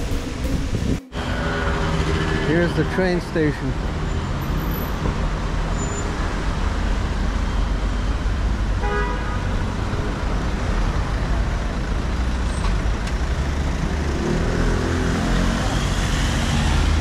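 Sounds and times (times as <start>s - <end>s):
low engine rumble: 0.0s - 3.9s
street traffic: 0.0s - 17.0s.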